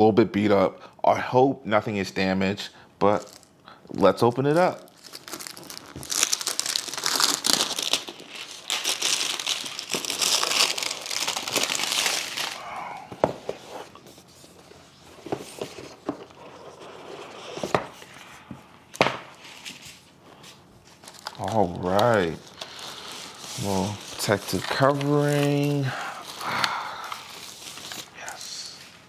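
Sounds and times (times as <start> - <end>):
plastic wrap tearing and crinkling: 4.4 - 13.0, 19.3 - 29.0.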